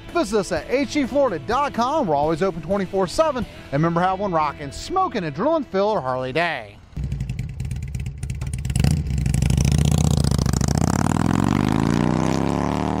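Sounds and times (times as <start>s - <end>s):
motorcycle engine revving: 7.0s - 13.0s.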